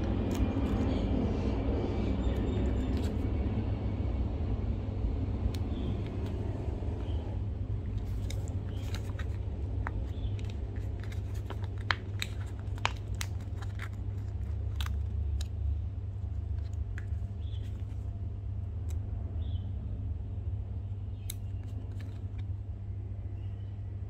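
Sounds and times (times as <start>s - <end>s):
small crisp clicks and crackles: 0.0s - 1.0s, 7.9s - 18.1s
steady low hum: 0.0s - 24.0s.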